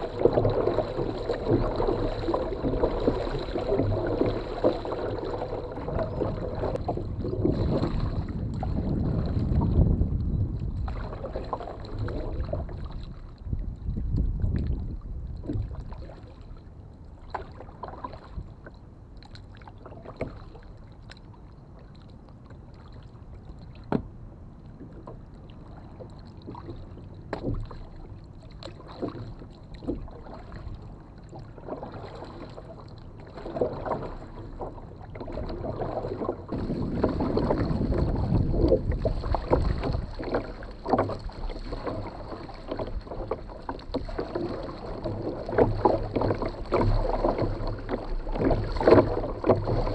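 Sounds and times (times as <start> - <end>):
water splashing against kayak hull: 0.0 - 49.9.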